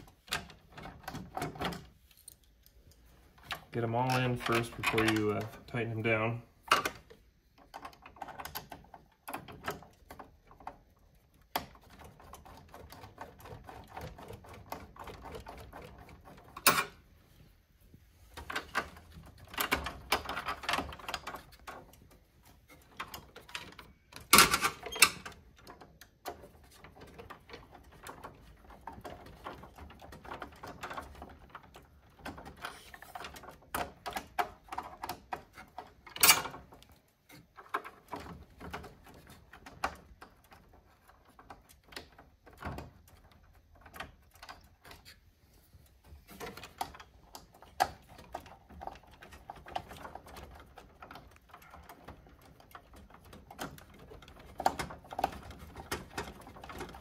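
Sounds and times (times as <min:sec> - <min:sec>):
screwdriver turning screws in metal: 0:03.5 - 0:05.9.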